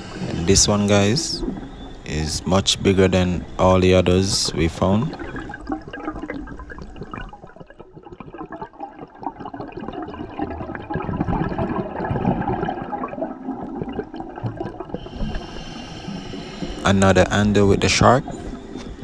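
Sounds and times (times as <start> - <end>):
fine crackling underwater: 0.0 - 19.0
muffled underwater rush: 0.0 - 19.0.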